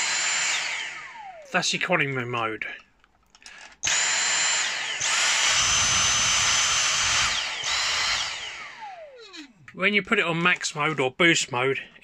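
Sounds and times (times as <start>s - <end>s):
handheld vacuum motor whining: 0.0s - 1.6s, 3.4s - 9.7s.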